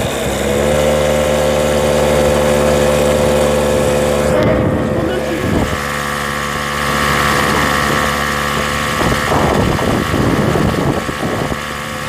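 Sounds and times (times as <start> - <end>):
road noise rush: 0.0 - 12.0
vehicle engine hum: 0.0 - 12.0.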